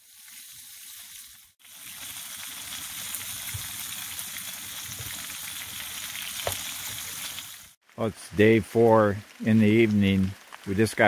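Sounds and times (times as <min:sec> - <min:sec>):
fish sizzling in hot oil: 0:00.0 - 0:07.9.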